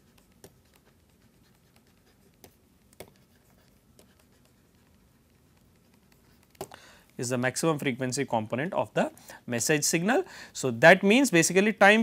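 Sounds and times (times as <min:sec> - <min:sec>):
stylus tapping on tablet: 0:00.0 - 0:01.0, 0:01.8 - 0:04.6, 0:05.5 - 0:06.8.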